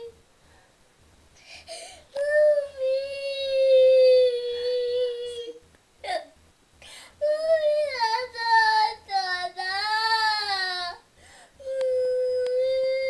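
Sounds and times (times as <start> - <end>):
girl crying wails: 2.2 - 6.2, 11.6 - 13.0.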